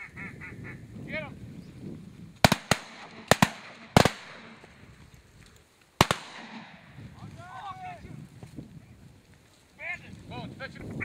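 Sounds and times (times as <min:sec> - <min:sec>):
shotgun blasts with echo: 0:02.4 - 0:04.6, 0:06.0 - 0:07.0.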